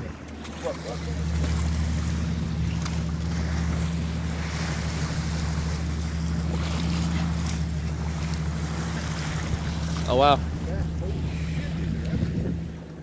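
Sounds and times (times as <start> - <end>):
boat motor humming: 0.0 - 13.0
water rushing: 0.0 - 13.0
wind noise on microphone: 10.5 - 12.8.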